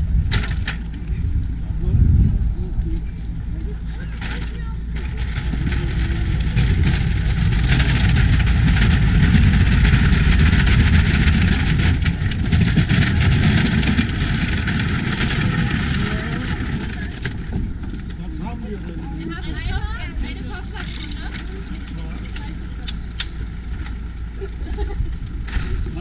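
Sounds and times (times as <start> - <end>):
motorboat engine running: 0.0 - 26.0.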